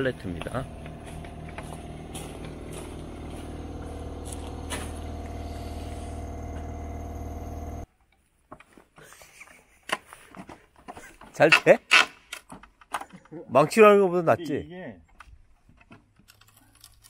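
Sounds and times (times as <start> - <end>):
engine humming: 0.0 - 7.9.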